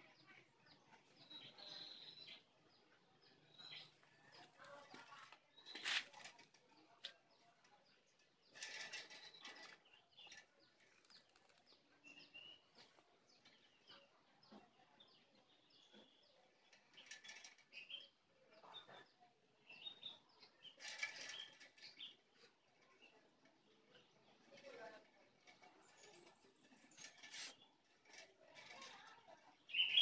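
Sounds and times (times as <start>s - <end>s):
brief rustling: 26.9s - 27.6s
faint bird chirps: 28.8s - 30.0s.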